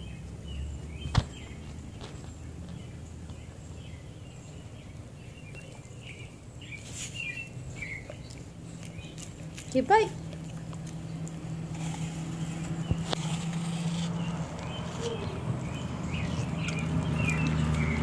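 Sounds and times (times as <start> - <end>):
dog licking and biting apple: 5.0 - 18.0.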